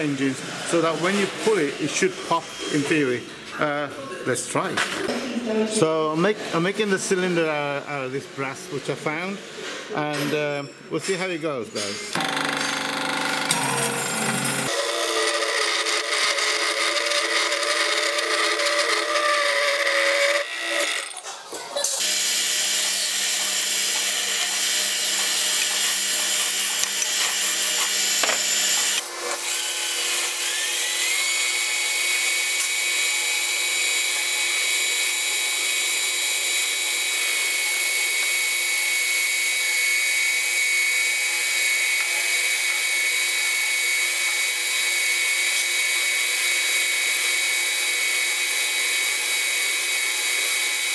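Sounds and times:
metal lathe turning: 12.1s - 21.2s, 22.0s - 50.9s
milling machine cutting steel: 12.1s - 21.2s, 22.0s - 50.9s
lathe whine: 12.2s - 21.1s, 22.0s - 50.9s.

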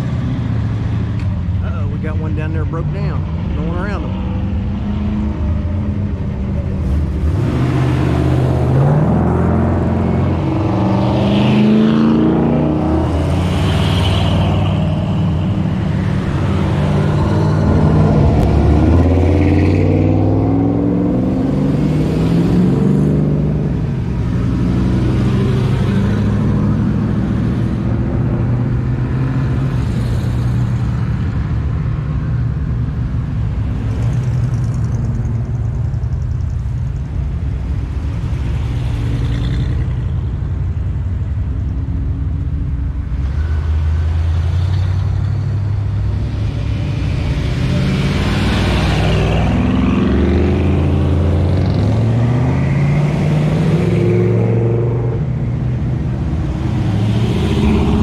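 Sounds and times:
pickup trucks driving past revving: 1.6s - 31.4s, 43.2s - 58.0s.

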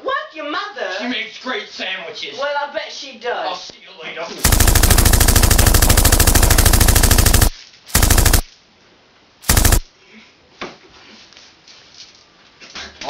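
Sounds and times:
machine gun firing: 4.4s - 8.5s, 9.4s - 9.8s.

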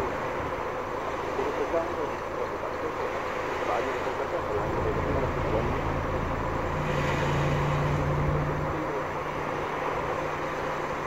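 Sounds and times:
rushing background noise: 0.0s - 11.0s
motor engine droning: 4.4s - 11.0s.

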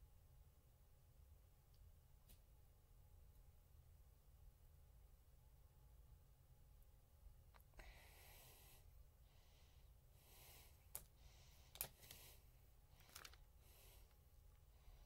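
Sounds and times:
person breathing close: 7.6s - 15.0s.

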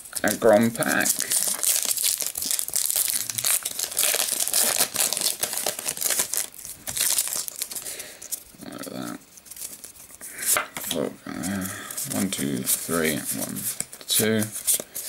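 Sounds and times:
wrapper crinkling and tearing: 0.1s - 8.5s.

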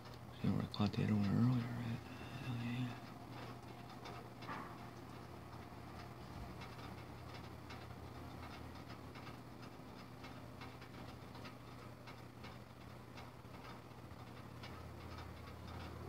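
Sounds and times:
faint ticking and tapping: 0.0s - 16.0s
steady low hum: 0.0s - 16.0s.

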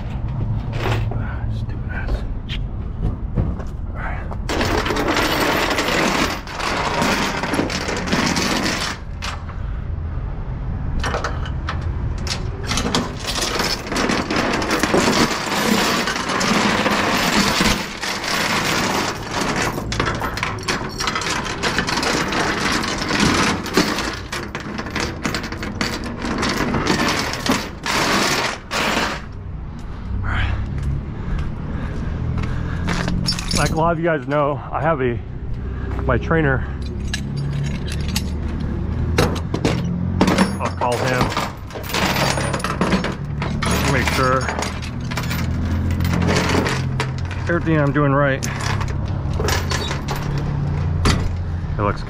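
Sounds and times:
chain rattling on metal deck: 4.5s - 9.5s, 11.0s - 29.3s, 32.7s - 34.5s, 36.6s - 51.6s.

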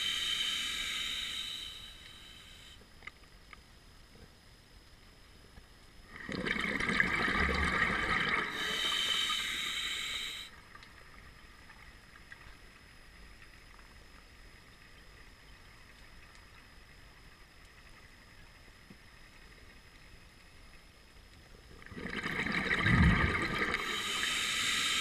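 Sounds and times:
regulator breath bubbling: 0.0s - 2.8s, 6.2s - 10.6s, 21.9s - 25.0s
regulator hiss: 0.0s - 3.0s, 8.3s - 10.6s, 23.2s - 25.0s
faint underwater background: 0.0s - 25.0s.

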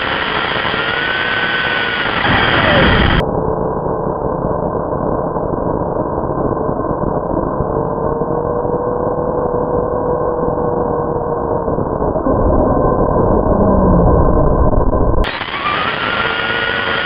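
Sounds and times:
faint motor whine: 0.0s - 17.0s
low rumble: 2.2s - 15.3s
toy truck drivetrain and tyre noise: 15.3s - 17.0s.

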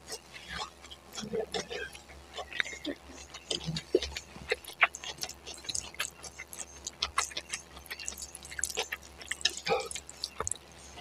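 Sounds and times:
chewing noodles: 0.0s - 11.0s.

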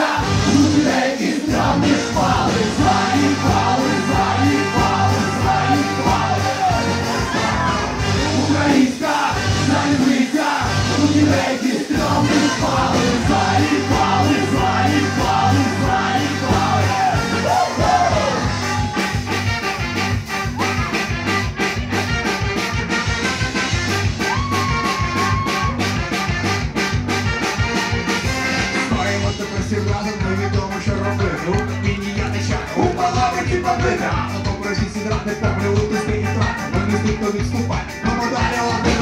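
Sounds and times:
lead vocal singing: 0.0s - 18.9s, 28.9s - 39.0s
drums: 0.0s - 39.0s
keyboard: 0.0s - 39.0s
trombone: 0.0s - 39.0s.

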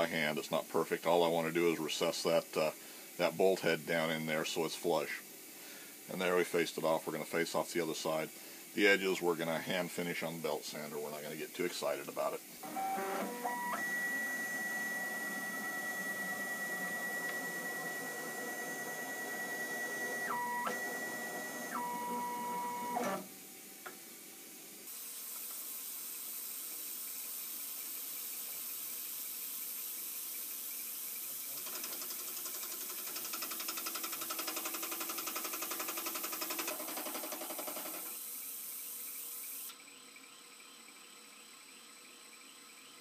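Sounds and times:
milling machine whine: 12.6s - 23.3s
hiss of metal cutting: 24.9s - 31.6s.

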